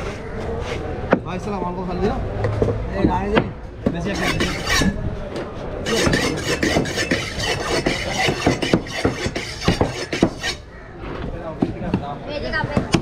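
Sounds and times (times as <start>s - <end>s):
knife scraping fish: 4.1s - 5.0s, 5.9s - 10.6s.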